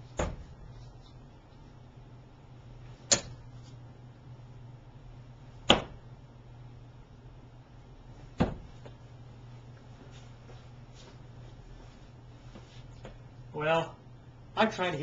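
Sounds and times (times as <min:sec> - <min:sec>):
darts thunking into dartboard: 0:00.1 - 0:00.6, 0:03.0 - 0:03.4, 0:05.6 - 0:06.0, 0:08.3 - 0:08.8.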